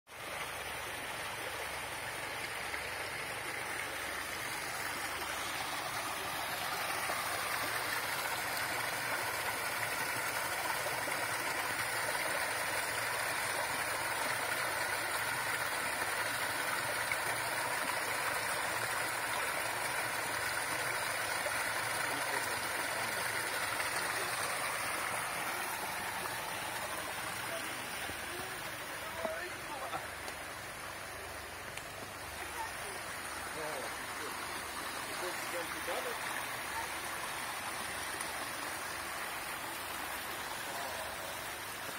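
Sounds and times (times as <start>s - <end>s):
stream rushing over rocks: 0.1s - 41.9s.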